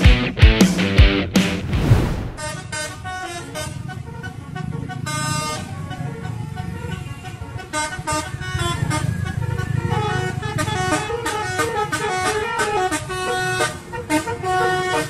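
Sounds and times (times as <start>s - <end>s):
bus engine rumble: 1.6s - 15.0s
air horn playing a tune: 2.4s - 15.0s.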